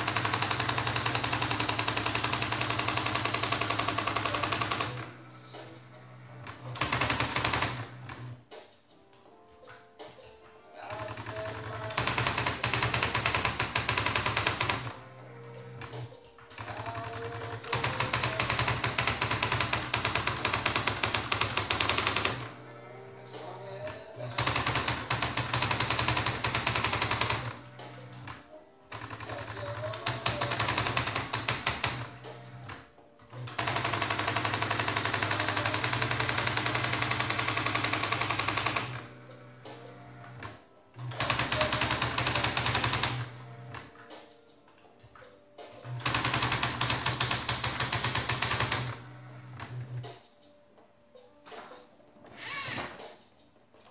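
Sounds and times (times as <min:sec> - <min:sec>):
typewriter carriage moving: 0:00.0 - 0:05.1, 0:15.8 - 0:22.5, 0:23.7 - 0:27.7, 0:28.9 - 0:32.2, 0:33.4 - 0:39.1, 0:40.4 - 0:43.4, 0:46.0 - 0:49.2
typewriter key strikes: 0:16.6 - 0:22.4, 0:41.1 - 0:43.2.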